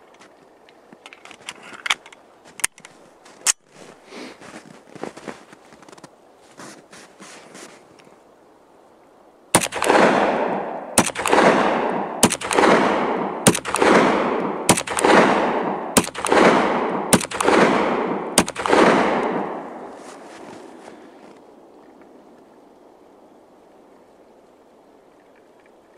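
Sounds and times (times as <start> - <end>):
pistol shots with echo: 9.6 - 19.9.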